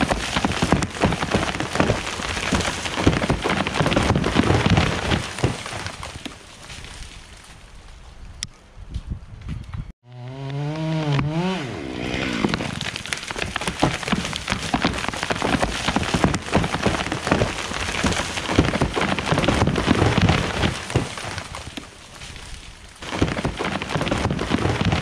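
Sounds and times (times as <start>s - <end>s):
pine tree cracking and crashing down: 0.0s - 8.3s, 11.0s - 25.0s.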